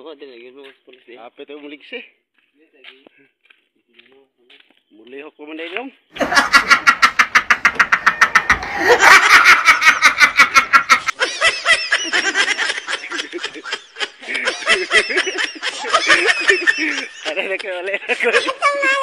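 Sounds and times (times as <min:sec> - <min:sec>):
man laughing hard: 0:06.2 - 0:19.0.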